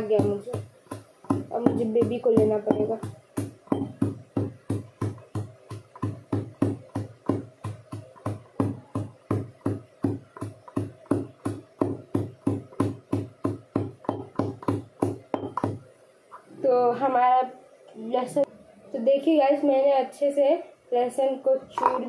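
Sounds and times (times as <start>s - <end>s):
pestle pounding in steel bowl: 0.0s - 15.8s.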